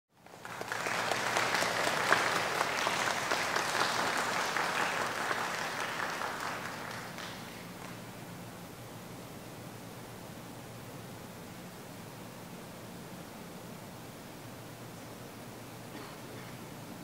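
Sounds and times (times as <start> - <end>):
audience applauding: 0.2 - 8.0.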